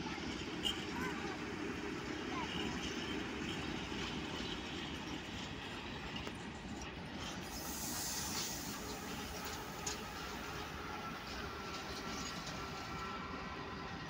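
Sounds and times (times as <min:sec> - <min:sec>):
train wheels on rails: 0:00.0 - 0:14.0
high hiss: 0:07.4 - 0:11.4.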